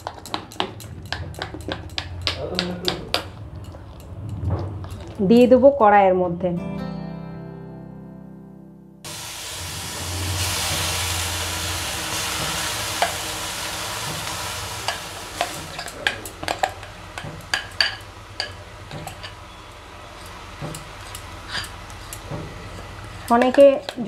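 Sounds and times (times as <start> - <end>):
sharp clicks and taps: 0.0 - 5.0
cream sizzling in hot pan: 9.1 - 24.0.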